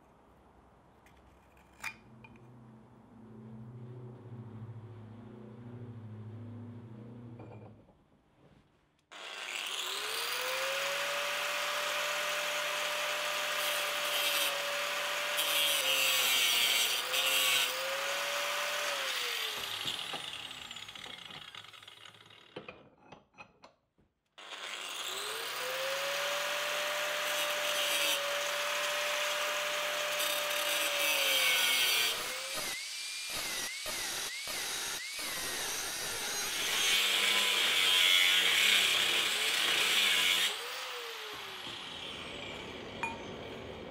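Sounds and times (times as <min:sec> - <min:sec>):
angle grinder cutting steel: 0:09.1 - 0:22.6, 0:24.4 - 0:43.8.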